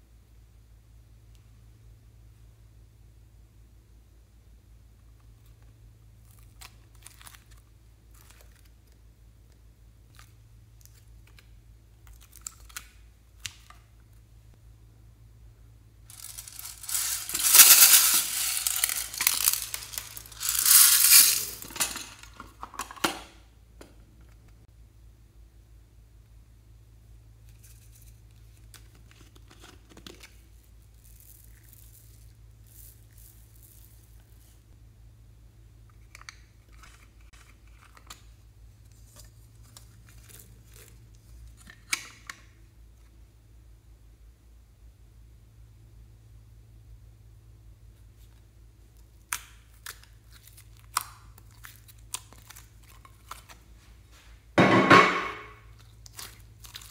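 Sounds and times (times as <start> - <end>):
steady low hum: 0.0 - 22.8
scattered bead clicks: 16.1 - 21.8
plastic beads pouring and rattling: 16.1 - 22.4, 30.8 - 34.6.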